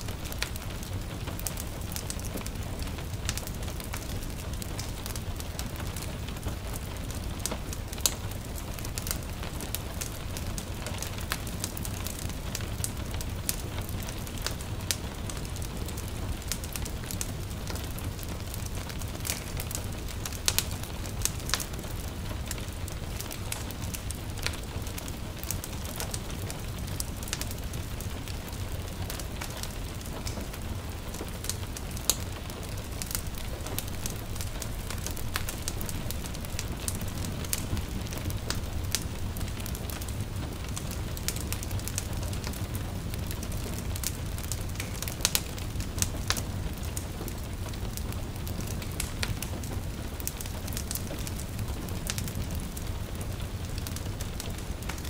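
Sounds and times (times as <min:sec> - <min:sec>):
light rain hissing: 0:00.0 - 0:55.0
wood fire crackling and popping: 0:00.0 - 0:55.0.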